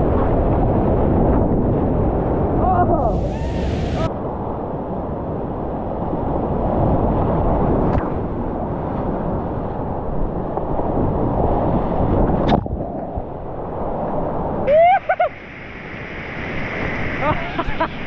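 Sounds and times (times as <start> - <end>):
wind rumble on microphone: 0.0 - 18.0
whitewater rushing: 2.9 - 4.2.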